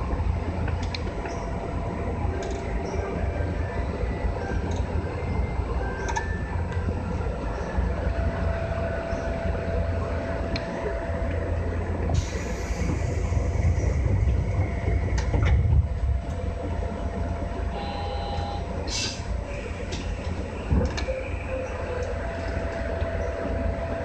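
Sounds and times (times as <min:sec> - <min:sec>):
low rumble: 0:00.0 - 0:24.0
air hiss: 0:12.2 - 0:13.6.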